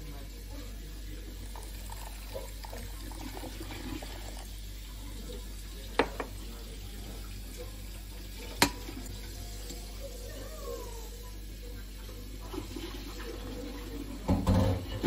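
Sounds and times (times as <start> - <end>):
water pouring into a glass bowl: 1.1 - 10.1.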